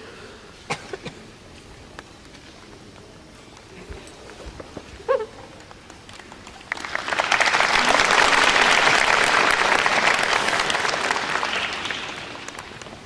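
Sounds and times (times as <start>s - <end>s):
audience applauding: 6.1s - 13.0s.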